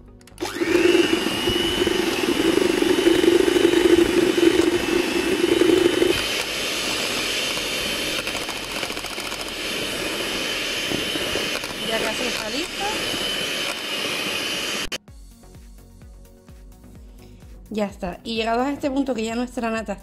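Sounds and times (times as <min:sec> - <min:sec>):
electric hand mixer whining: 0:00.4 - 0:15.0.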